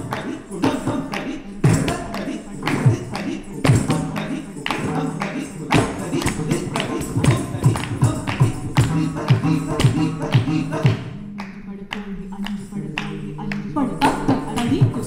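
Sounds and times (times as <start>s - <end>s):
ankle bells jingling: 0.0s - 10.8s
rhythmic percussion: 0.0s - 15.0s.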